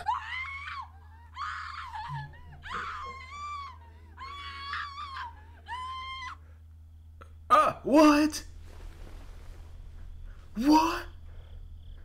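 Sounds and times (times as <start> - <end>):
shrill wailing screams: 0.0 - 6.5
steady low hum: 0.0 - 12.0.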